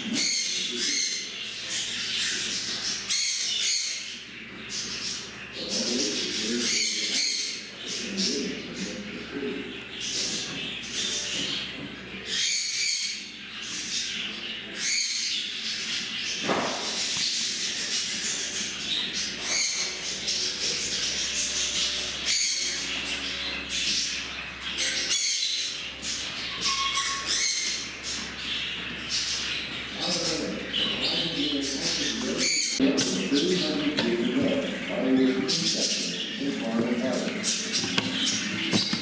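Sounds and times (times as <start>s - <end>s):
parrot chirps and squawks: 0.0s - 5.3s, 6.6s - 7.8s, 12.2s - 29.9s
small parrots chattering: 0.0s - 39.0s.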